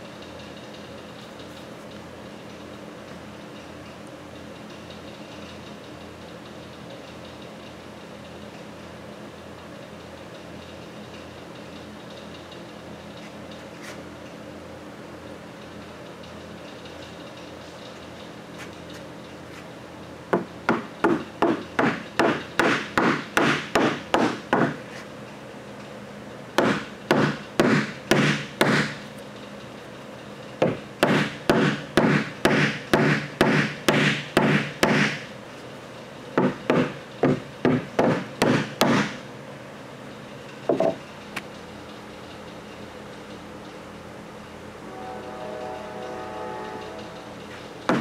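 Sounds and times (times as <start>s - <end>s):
hammer striking wood board: 20.4s - 24.8s, 26.6s - 29.0s, 30.6s - 35.2s, 36.4s - 39.2s, 40.7s - 41.0s.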